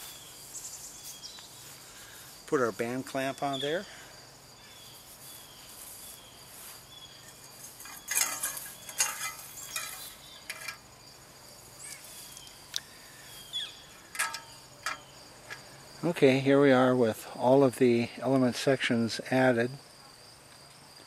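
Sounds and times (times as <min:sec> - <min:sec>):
crickets chirring: 0:00.0 - 0:21.0
hands handling metal tubing: 0:07.2 - 0:10.9, 0:14.0 - 0:15.7.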